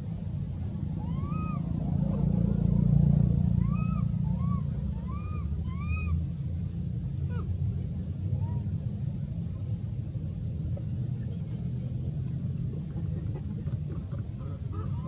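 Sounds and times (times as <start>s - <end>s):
steady low rumble: 0.0s - 15.0s
macaque coos: 13.4s - 15.0s.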